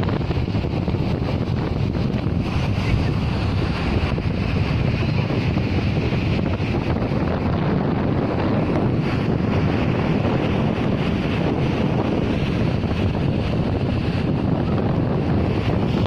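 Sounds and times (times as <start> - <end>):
waves breaking on shore: 0.0 - 16.0
wind buffeting microphone: 0.0 - 16.0.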